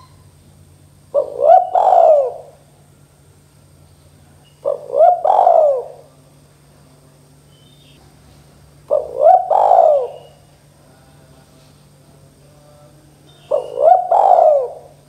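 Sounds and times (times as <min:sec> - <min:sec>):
dove cooing: 0:00.9 - 0:02.7, 0:04.3 - 0:06.3, 0:08.8 - 0:10.5, 0:13.3 - 0:15.0.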